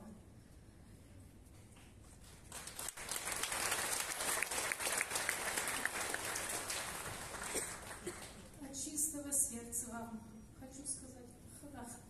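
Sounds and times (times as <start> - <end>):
congregation applauding: 2.1 - 8.6.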